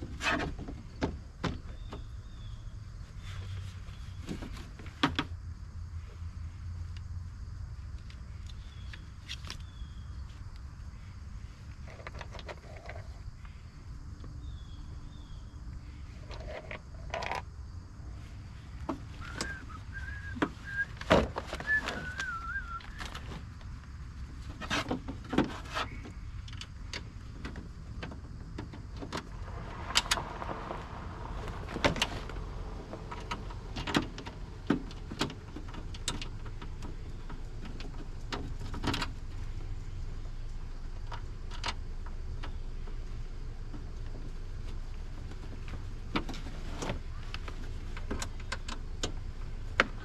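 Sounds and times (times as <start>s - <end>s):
warbling whistle: 19.2s - 21.0s, 21.6s - 23.1s.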